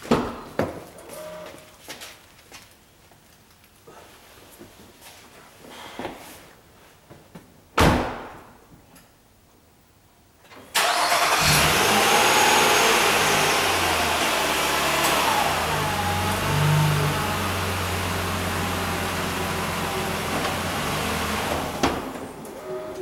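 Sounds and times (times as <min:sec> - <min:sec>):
car engine starting and idling: 0:10.7 - 0:23.0.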